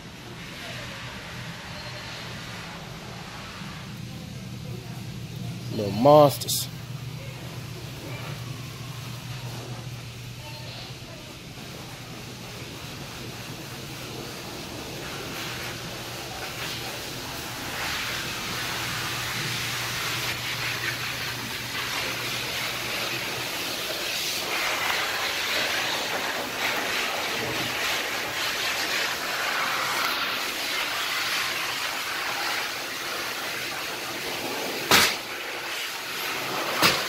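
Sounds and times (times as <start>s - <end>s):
rushing hiss of water spray: 13.8s - 37.0s
sharp knock: 34.9s - 35.2s.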